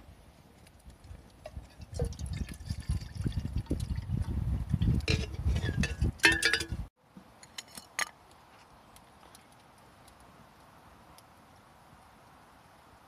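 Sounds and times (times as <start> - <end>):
water pouring into kettle: 1.8 - 4.2.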